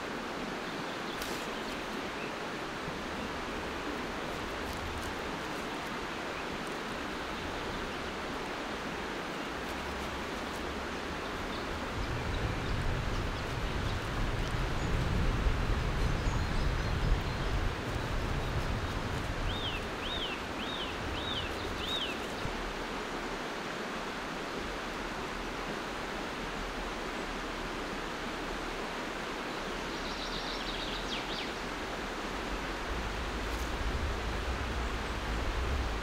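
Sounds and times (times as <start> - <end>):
river water rushing: 0.0 - 36.0
low rumble: 32.9 - 36.0.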